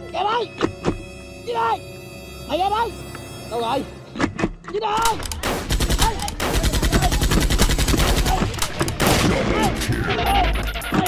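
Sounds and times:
rapid automatic gunfire: 0:05.4 - 0:09.3.

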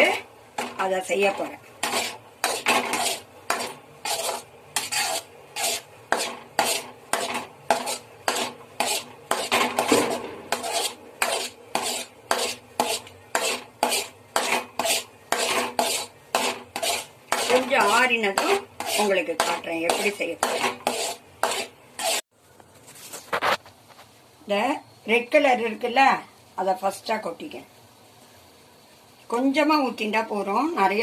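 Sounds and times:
metal spoon scraping a pan: 0:00.0 - 0:22.2.

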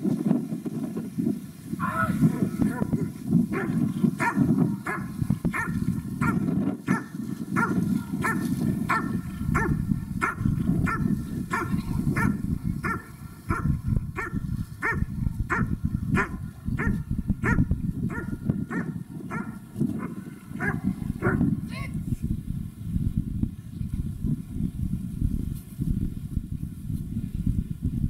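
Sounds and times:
dog barking: 0:01.8 - 0:21.5.

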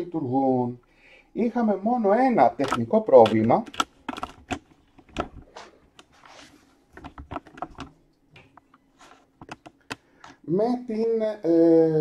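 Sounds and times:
light clicks and knocks: 0:06.9 - 0:10.4.

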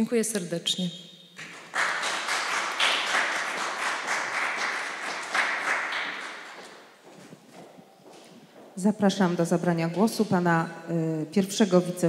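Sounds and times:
audience applause: 0:01.4 - 0:06.8.

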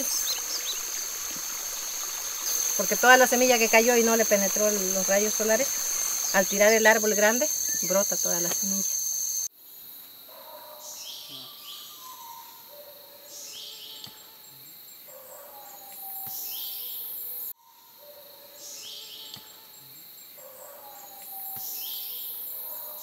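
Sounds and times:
bird calls and whistles: 0:00.0 - 0:02.9
insect drone: 0:00.0 - 0:10.7.

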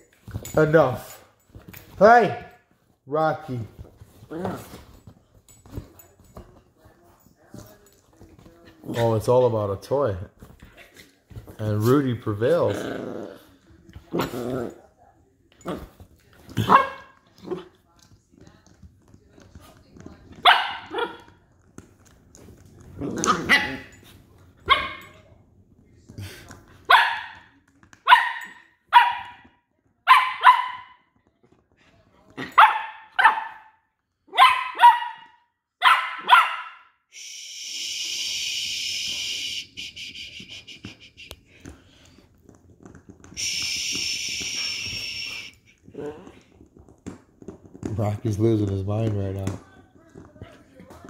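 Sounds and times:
dogs barking in play: 0:15.6 - 0:17.8, 0:23.0 - 0:25.2, 0:26.8 - 0:31.1, 0:32.4 - 0:37.0.

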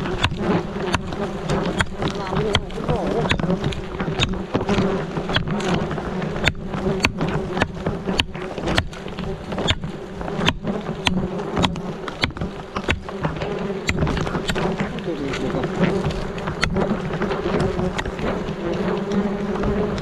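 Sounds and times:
swarm of insects buzzing: 0:00.0 - 0:20.0
sharp clicks: 0:10.4 - 0:20.0.

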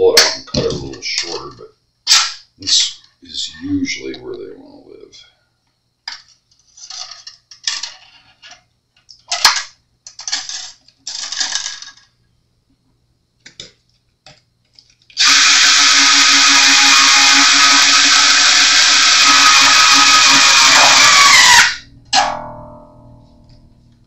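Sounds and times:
electric screwdriver running: 0:15.2 - 0:21.8.

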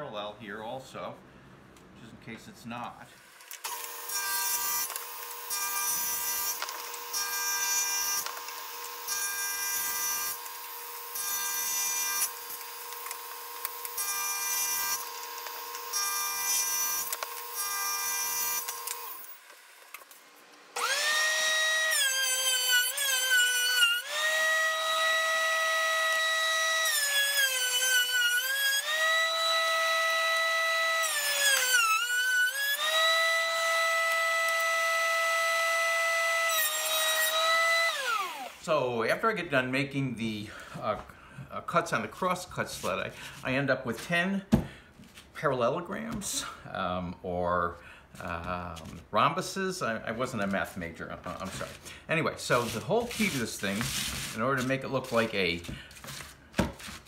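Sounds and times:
table saw cutting wood: 0:03.2 - 0:38.8, 0:51.2 - 0:57.0
thickness planer whining: 0:03.4 - 0:38.7, 0:51.2 - 0:57.0.

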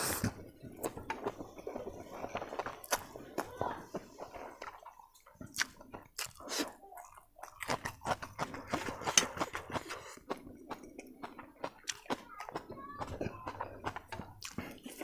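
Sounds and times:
person slurping noodles: 0:00.0 - 0:00.4, 0:05.5 - 0:06.8, 0:07.7 - 0:12.0
wet chewing mouth sounds: 0:02.1 - 0:03.5, 0:04.2 - 0:15.0.

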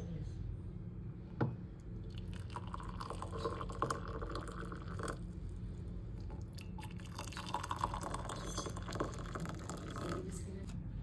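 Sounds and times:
water pouring into mugs: 0:02.0 - 0:05.4, 0:06.2 - 0:10.4.

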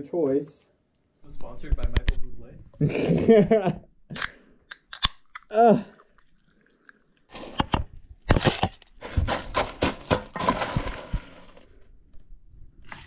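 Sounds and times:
frozen food clattering into blender: 0:08.4 - 0:11.7.

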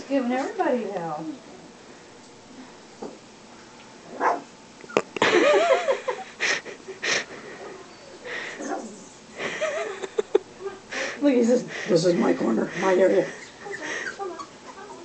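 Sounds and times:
puppies yipping and squealing: 0:12.8 - 0:15.0.

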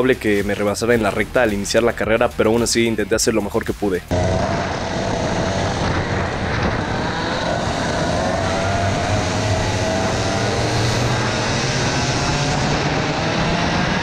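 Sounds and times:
kart engines at full throttle: 0:04.1 - 0:14.0.

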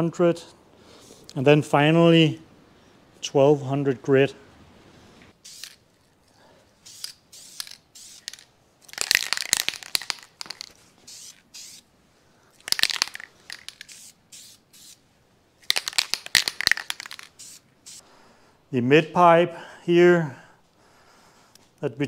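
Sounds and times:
aerosol can rattling and hissing: 0:05.4 - 0:05.9, 0:06.8 - 0:11.9, 0:12.6 - 0:15.0, 0:15.6 - 0:18.0.

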